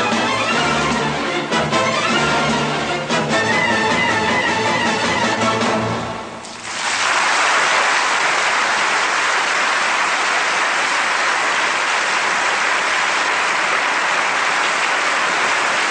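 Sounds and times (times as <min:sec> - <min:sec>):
audience applauding: 0:06.5 - 0:15.9.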